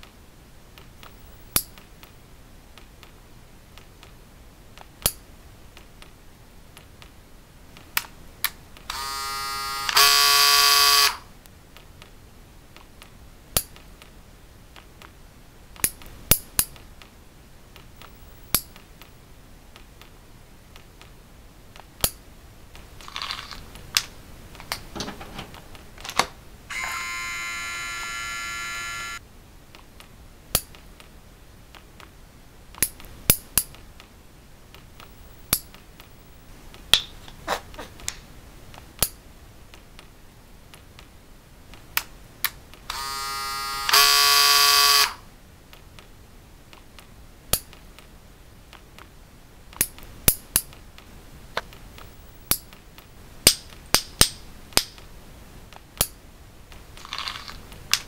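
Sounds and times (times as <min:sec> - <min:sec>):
steady buzzing tone: 0:08.9 - 0:11.4, 0:26.7 - 0:29.2, 0:42.9 - 0:45.3
nail clippers clicking: 0:09.8 - 0:10.1, 0:42.9 - 0:44.1.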